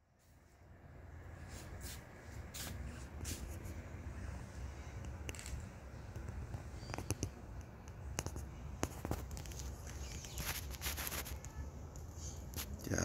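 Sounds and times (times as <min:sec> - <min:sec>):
faint clicks and taps: 0:05.0 - 0:10.4.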